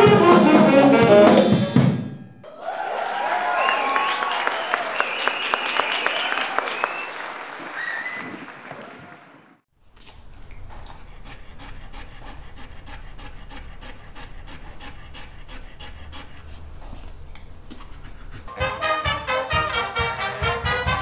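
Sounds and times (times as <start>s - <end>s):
brass music: 0.0s - 2.1s, 18.5s - 21.0s
dog panting: 10.4s - 18.7s.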